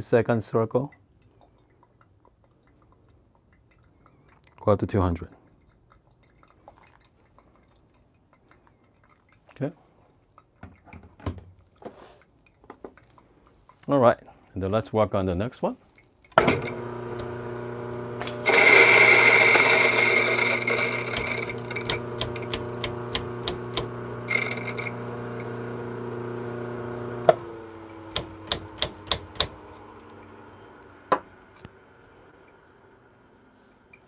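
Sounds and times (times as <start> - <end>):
coffee grinder motor hum: 16.4 - 33.3
beans grinding: 16.5 - 31.7.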